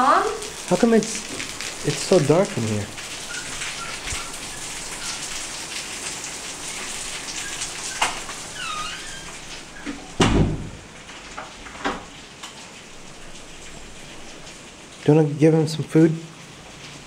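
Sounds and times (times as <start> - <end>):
rain-like hiss: 0.0 - 17.0
dull knocks: 10.2 - 10.8.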